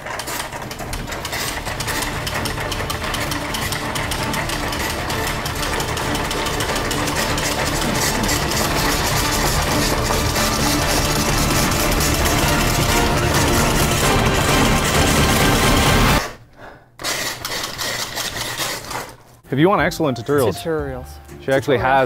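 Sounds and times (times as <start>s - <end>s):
ice machine grinding ice: 0.0s - 16.2s.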